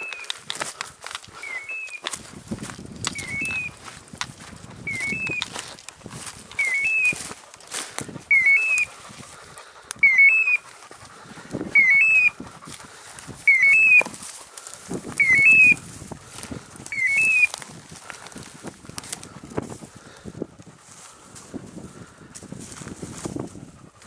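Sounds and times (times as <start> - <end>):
brush rustling underfoot: 0.0 - 24.0
beeper collar rising chirp: 1.4 - 2.0, 3.1 - 3.8, 4.9 - 5.4, 6.6 - 7.2, 8.3 - 8.9, 10.0 - 10.7, 11.7 - 12.4, 13.5 - 14.1, 15.2 - 15.8, 16.9 - 17.5.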